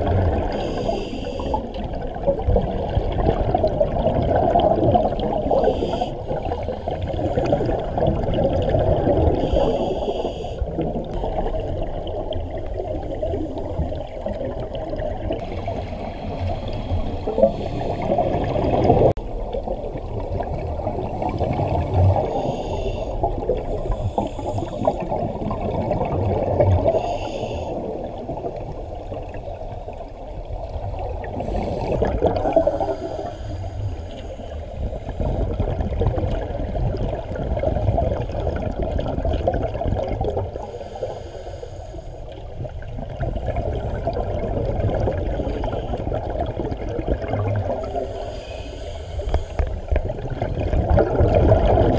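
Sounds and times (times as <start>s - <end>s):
exhaled bubbles gurgling underwater: 0.0s - 51.9s
underwater regulator breathing: 0.3s - 1.8s, 5.4s - 7.7s, 9.2s - 10.8s, 22.2s - 25.3s, 26.8s - 28.0s, 31.4s - 35.4s, 40.6s - 42.4s, 47.7s - 51.2s.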